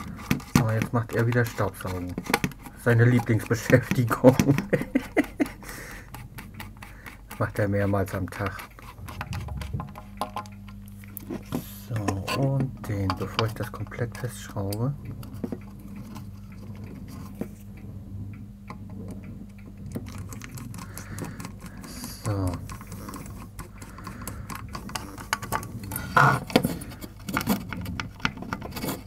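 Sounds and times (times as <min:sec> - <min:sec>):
steady low hum: 0:00.0 - 0:29.0
screwdriver clicking and ticking: 0:18.7 - 0:29.0.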